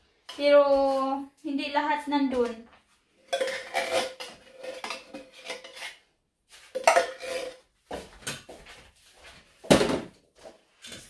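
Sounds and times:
metal spoon scraping cookware: 0:03.2 - 0:06.1, 0:06.8 - 0:07.6.

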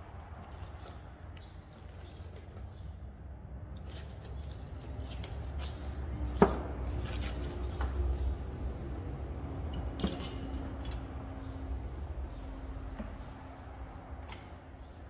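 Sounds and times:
ringing metal clink: 0:09.7 - 0:11.2.

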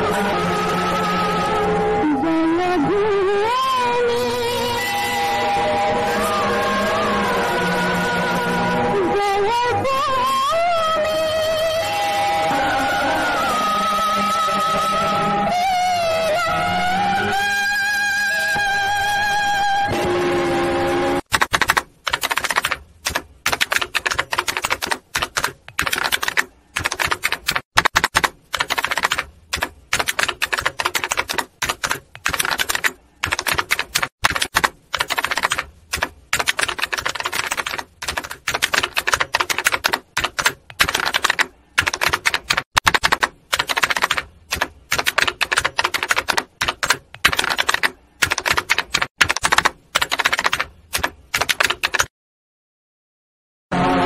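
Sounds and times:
typewriter keys clacking: 0:21.3 - 0:52.1.

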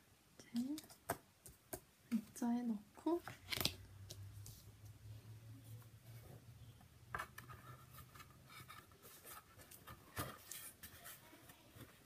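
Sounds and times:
paper rustling: 0:07.5 - 0:12.0.

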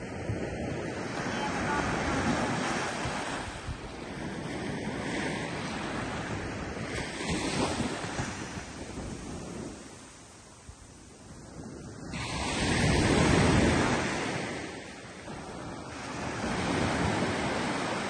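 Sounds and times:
small surf washing up beach: 0:00.0 - 0:18.0
wind rumbling on microphone: 0:00.0 - 0:18.0.

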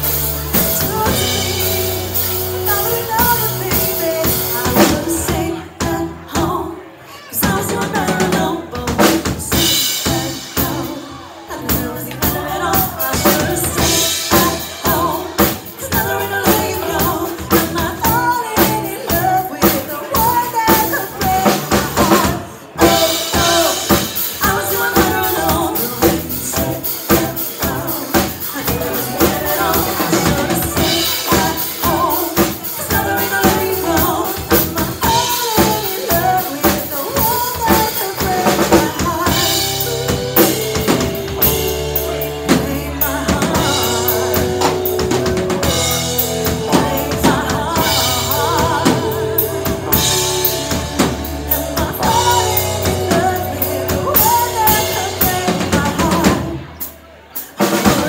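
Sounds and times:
drum kit: 0:00.0 - 0:06.6, 0:07.4 - 0:58.0
bass guitar: 0:00.0 - 0:06.8, 0:07.4 - 0:56.9
woman singing: 0:00.0 - 0:56.9, 0:57.6 - 0:58.0.

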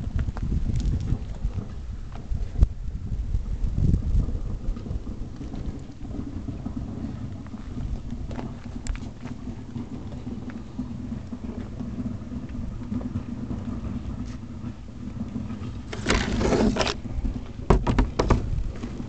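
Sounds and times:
rustling noise: 0:00.0 - 0:19.0
sharp knocks: 0:17.7 - 0:18.5.

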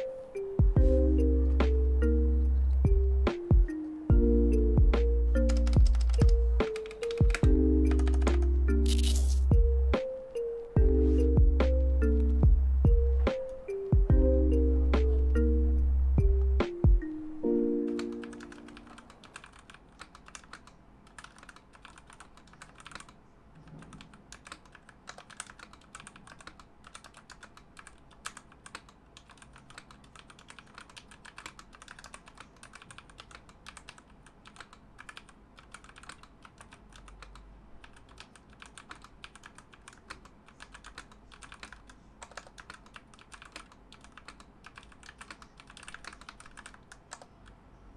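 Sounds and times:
background music: 0:00.0 - 0:19.0
mechanical keyboard typing: 0:05.3 - 0:10.4, 0:17.8 - 0:47.6.

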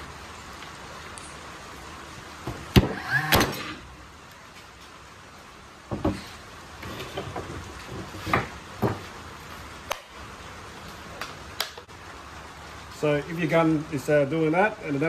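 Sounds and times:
wooden board knocking on pallet: 0:05.9 - 0:06.2, 0:08.2 - 0:09.0.

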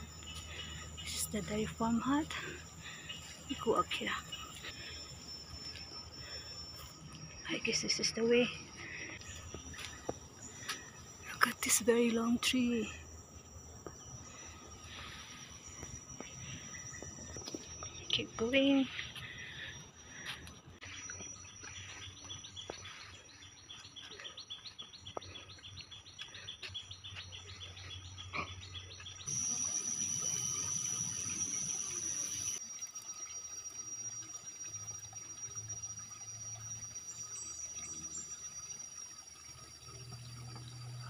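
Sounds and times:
high-pitched insect buzz: 0:29.3 - 0:41.0.

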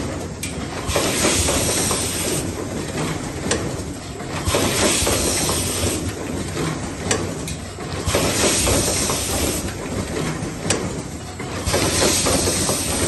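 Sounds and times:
mechanical clatter: 0:00.0 - 0:13.0
pneumatic cylinders hissing: 0:00.8 - 0:02.5, 0:04.4 - 0:06.2, 0:08.0 - 0:09.7, 0:11.6 - 0:13.0.

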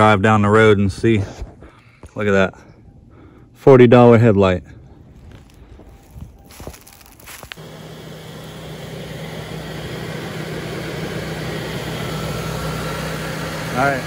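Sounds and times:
car engine humming: 0:05.4 - 0:14.0.

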